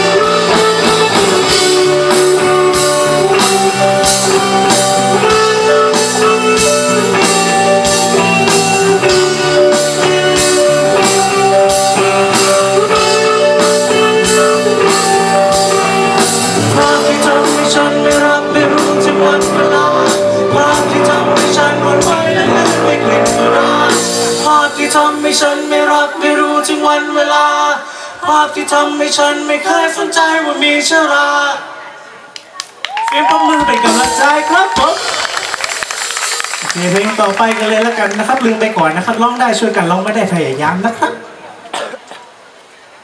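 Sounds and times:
steady drumbeat: 0.0 - 24.6, 33.6 - 37.4
live rock band playing: 0.0 - 26.1, 33.6 - 37.9.

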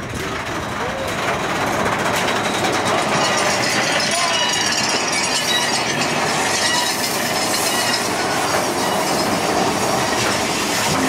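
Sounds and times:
roller coaster rattling on track: 0.0 - 11.0
thin wheel squeal: 2.4 - 11.0.

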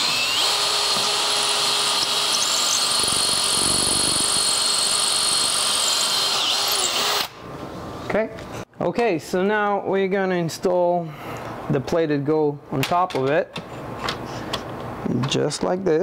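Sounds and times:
cordless drill whining: 0.0 - 7.3.

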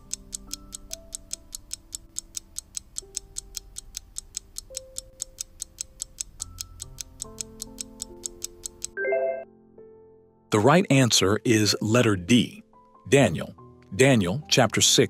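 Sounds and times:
countdown timer ticking: 0.0 - 9.4
soft background music: 0.0 - 15.0.

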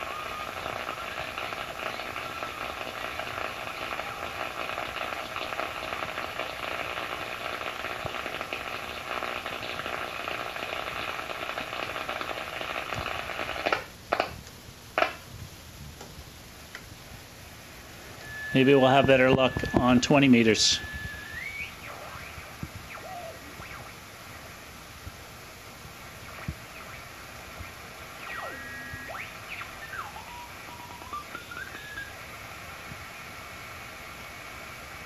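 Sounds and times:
faint radio whistles: 0.0 - 4.8, 18.1 - 24.8, 26.1 - 32.3
radio static hiss and crackle: 0.0 - 35.0.

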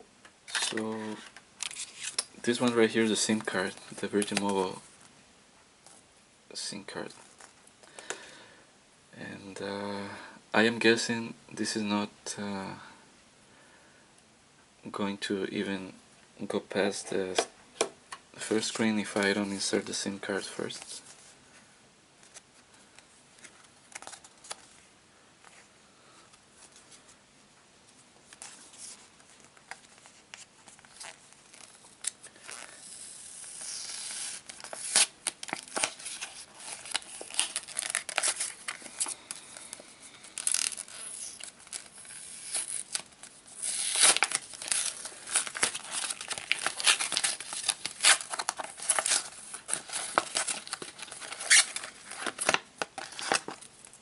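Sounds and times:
paper packaging rustling and tearing: 28.4 - 53.7.

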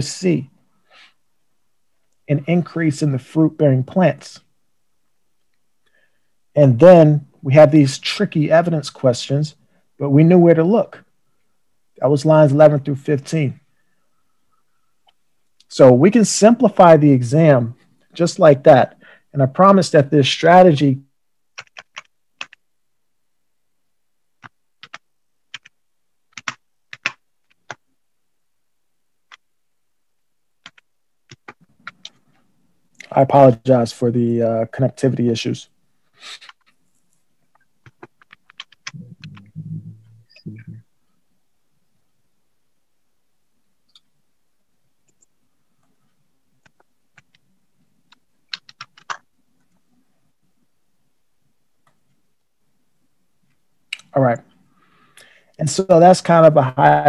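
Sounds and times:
faint steady hum: 0.0 - 57.0
computer keyboard clicks: 21.6 - 22.6, 24.4 - 27.8, 30.6 - 32.2, 37.8 - 39.4, 48.1 - 49.2.

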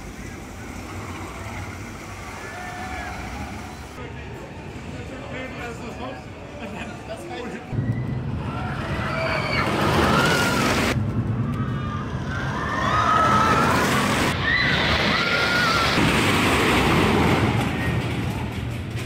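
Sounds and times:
roller coaster train roaring: 0.0 - 19.0
riders screaming: 1.4 - 4.0, 7.9 - 16.0.

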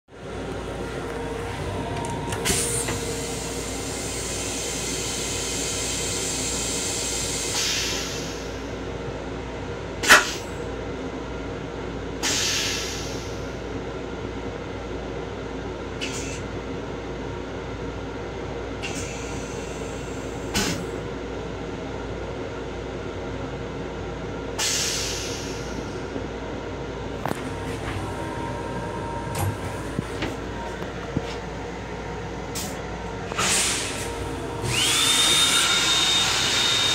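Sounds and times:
railcar hum: 0.0 - 36.9.

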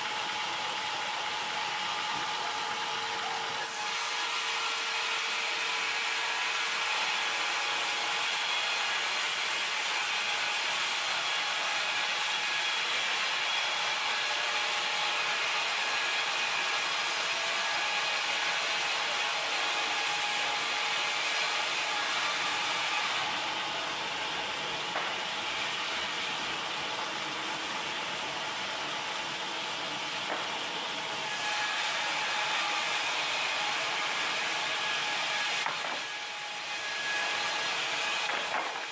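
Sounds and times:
band saw cutting wood: 0.2 - 38.9.

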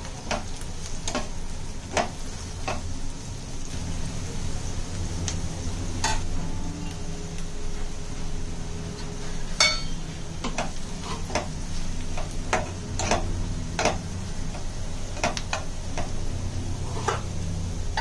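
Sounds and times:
food frying in oil: 0.0 - 18.0
steady low hum: 0.0 - 18.0
spatula scraping a pan: 10.5 - 11.5, 16.7 - 17.4.

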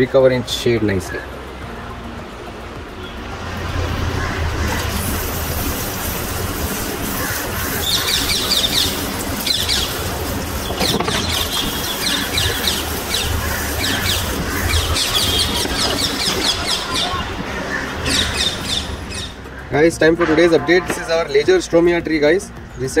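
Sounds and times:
birds chirping: 0.0 - 23.0
water pouring onto gravel: 4.6 - 17.2.

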